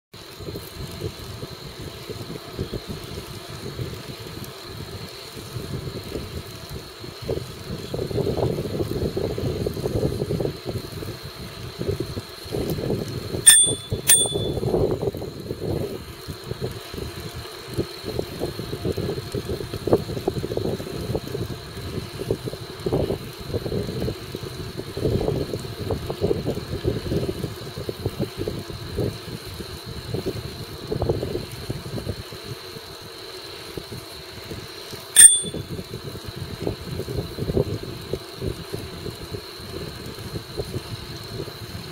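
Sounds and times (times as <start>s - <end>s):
bicycle rolling noise: 0.2s - 41.9s
wind buffeting microphone: 0.4s - 32.2s
bicycle bell ringing: 13.5s - 14.8s, 35.2s - 35.7s.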